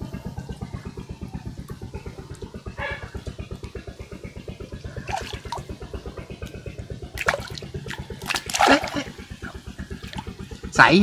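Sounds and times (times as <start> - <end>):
water splashing: 4.9 - 10.5.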